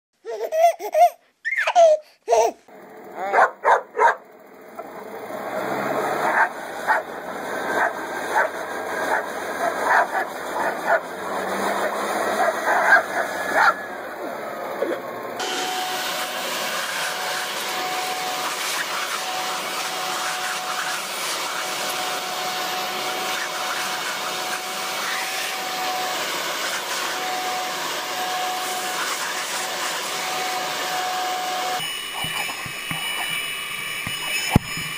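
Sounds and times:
leaf blower with thin whine: 2.7s - 34.9s
dog barking: 3.3s - 4.2s, 6.2s - 7.0s, 7.8s - 8.5s, 9.1s - 11.1s, 12.4s - 13.8s.

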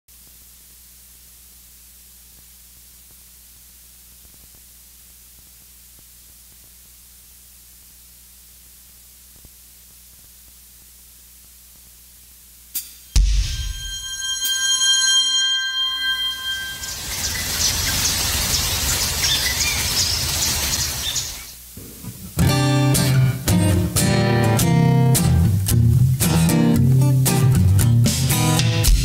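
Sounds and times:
low mains hum: 0.1s - 28.0s
electronic hiss: 16.0s - 24.1s.

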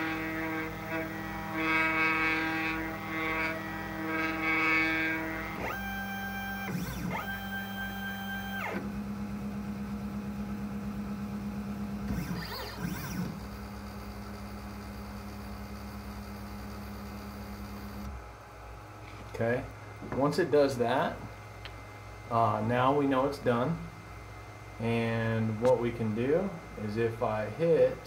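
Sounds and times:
stepper motors whining: 0.0s - 8.9s, 12.1s - 18.2s.

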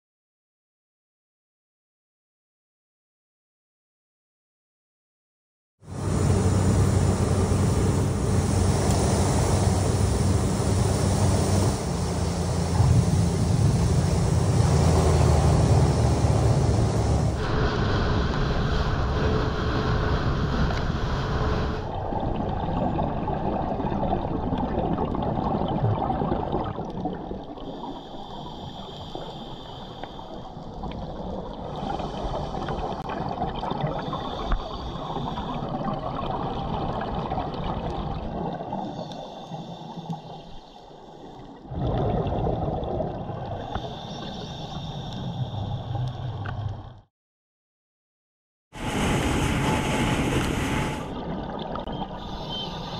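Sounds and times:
boat running fast over sea: 5.9s - 21.9s, 48.8s - 51.2s
underwater exhaled bubbles: 21.7s - 47.1s, 48.8s - 52.9s.

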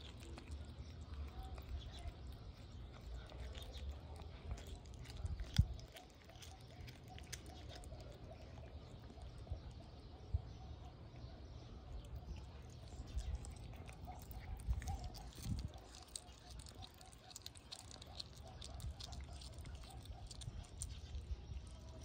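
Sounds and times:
cat chewing meat: 0.0s - 22.0s.

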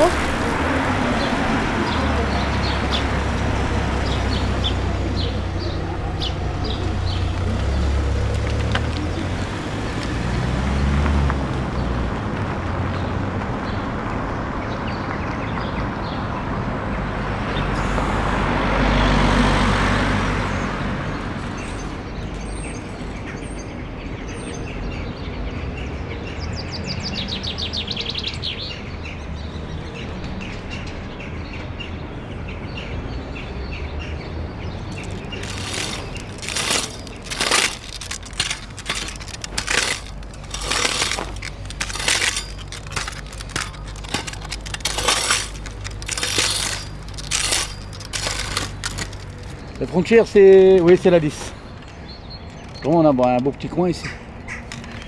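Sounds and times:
small birds chirping: 0.0s - 10.0s, 20.5s - 55.0s
vehicle passing: 0.0s - 14.3s, 16.8s - 21.5s
low traffic rumble: 0.0s - 55.0s.

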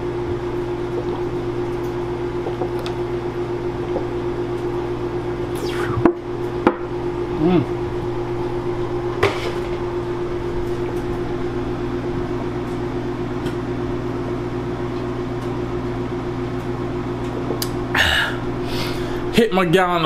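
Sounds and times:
microwave oven humming: 0.0s - 20.0s
person exhaling: 17.9s - 19.3s.

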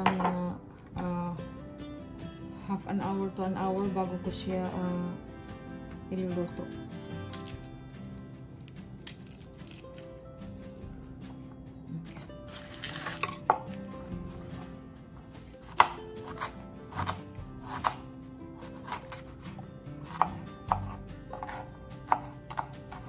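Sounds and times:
knife hitting cutting board: 20.0s - 23.0s.

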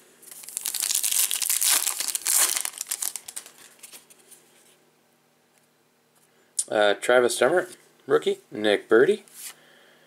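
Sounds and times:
plastic wrapper crinkling: 0.2s - 4.2s.

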